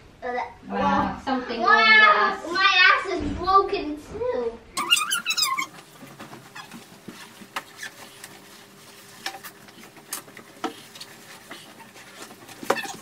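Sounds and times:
bedding rustling: 5.6 - 13.0.

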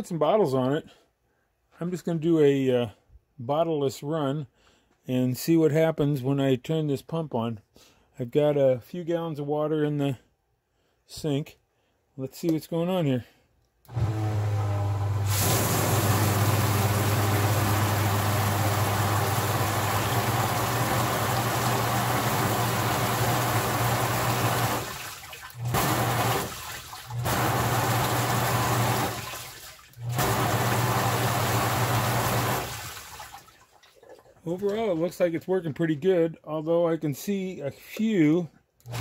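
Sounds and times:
water pump humming: 13.9 - 35.1
water spraying inside plastic tub: 15.1 - 35.1.

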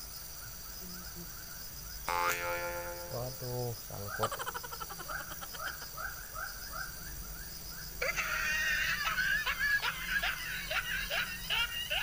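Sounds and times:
chorus of rising animal calls: 8.0 - 12.0.

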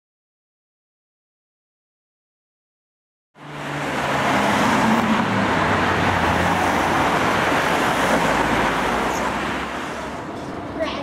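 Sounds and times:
vehicle passing close by: 3.4 - 10.3
tyre and road noise: 3.4 - 11.0.

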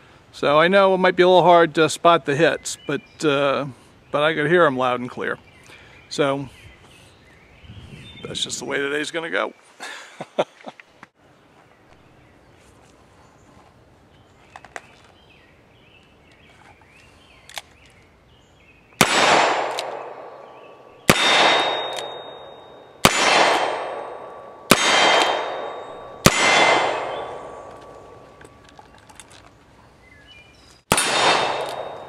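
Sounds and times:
bullet ringing on steel target: 19.0 - 28.4, 30.9 - 32.0
revolver shots: 19.0 - 28.4, 30.9 - 32.0.

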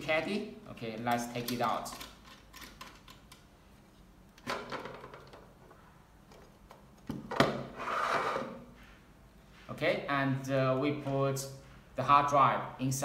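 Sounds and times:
drive caddy sliding scrape: 7.7 - 8.6.

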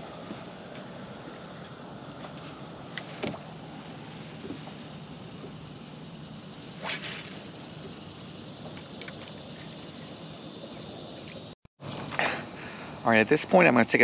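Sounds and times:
high outdoor hiss: 0.0 - 14.0
fishing rod swishing: 6.7 - 7.8.

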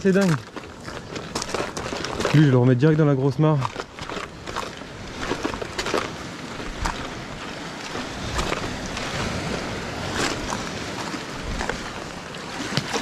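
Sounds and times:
footsteps on rock: 0.0 - 13.0
surf washing in rocky gully: 0.0 - 13.0
wind on microphone: 4.0 - 13.0.

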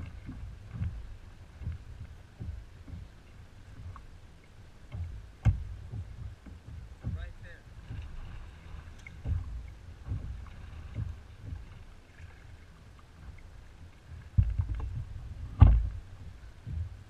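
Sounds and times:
water lapping at kayak hull: 0.0 - 17.0
wind buffeting microphone: 0.0 - 17.0
sharp thump: 15.6 - 15.9.

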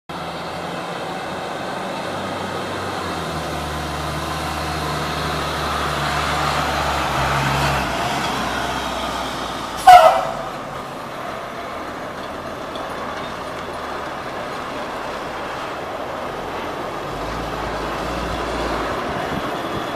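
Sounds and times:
truck engine passing by: 0.1 - 19.9
loud horn blast: 9.8 - 10.7.

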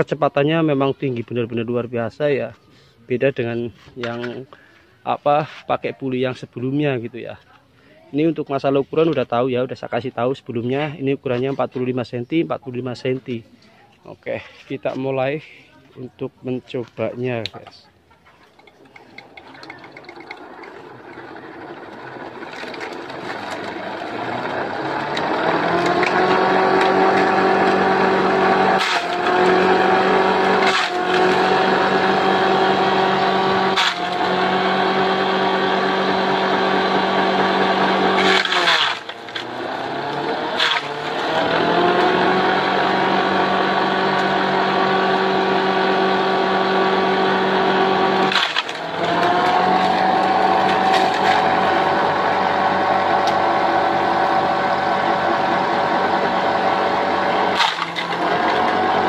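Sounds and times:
electric motor humming: 18.6 - 59.0.

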